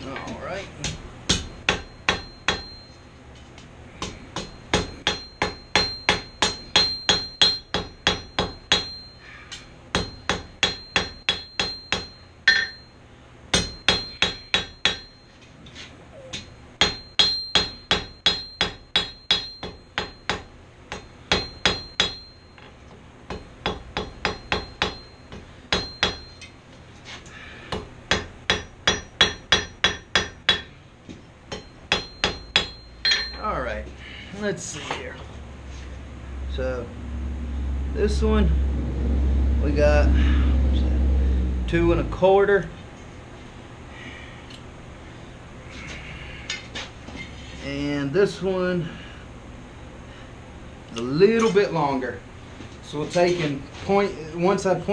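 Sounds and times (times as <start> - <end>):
hammer striking steel on anvil: 0.8 - 3.0, 4.0 - 15.2, 16.3 - 26.6, 27.7 - 30.8, 31.5 - 33.6
high anvil ring: 1.6 - 3.1, 4.4 - 15.4, 16.2 - 26.6, 31.5 - 33.8.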